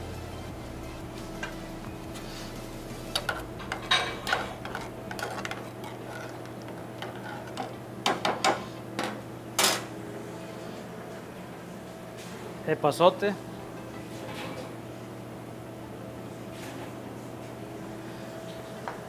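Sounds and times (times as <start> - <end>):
loud metal clatter: 3.2 - 6.1
metal spoon scraping a saucepan: 3.2 - 7.8.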